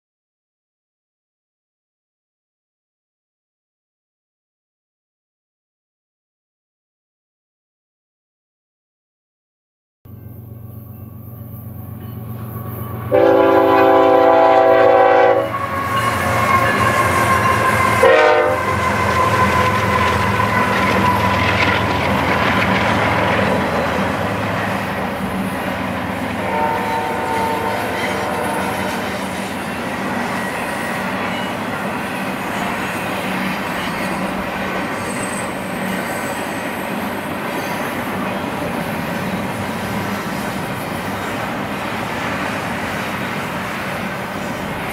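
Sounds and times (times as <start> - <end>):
freight train rumbling and clattering: 11.5 - 44.9
locomotive air horn blasts: 12.7 - 21.4, 26.4 - 29.4.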